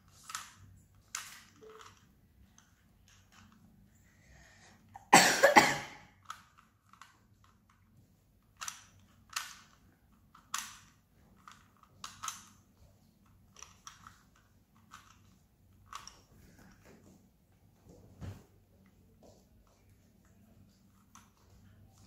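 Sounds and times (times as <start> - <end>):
puzzle cube clicking and rattling: 0.0 - 4.0, 6.2 - 16.9.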